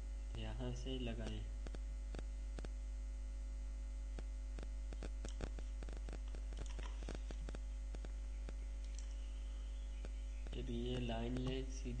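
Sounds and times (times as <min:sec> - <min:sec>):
electrical mains hum: 0:00.0 - 0:12.0
faint irregular clicks: 0:04.1 - 0:09.2.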